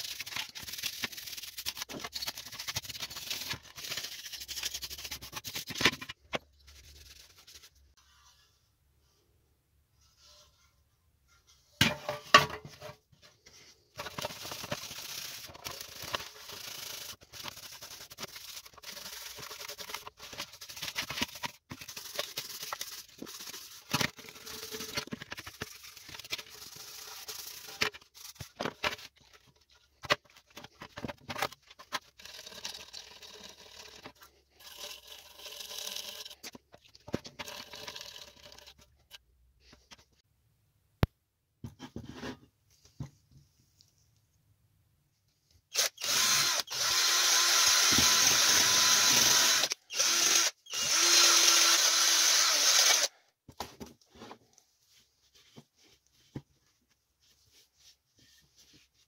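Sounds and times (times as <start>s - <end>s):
scraping and rubbing: 0.0s - 8.6s, 12.6s - 32.2s.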